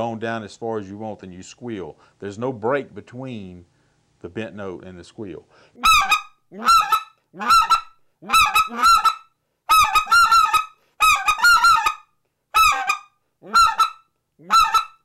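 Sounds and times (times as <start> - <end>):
goose call clucks: 5.8 - 15.0.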